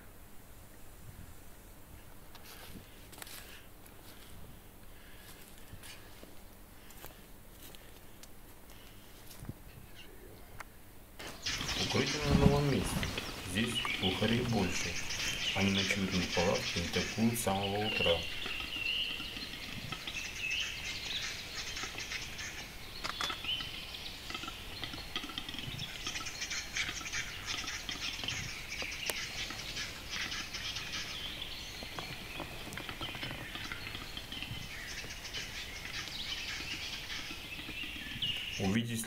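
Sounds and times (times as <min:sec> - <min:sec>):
small forest birds chirping: 0:00.0 - 0:39.0
capercaillie dry clicks and scraping song: 0:11.2 - 0:38.6.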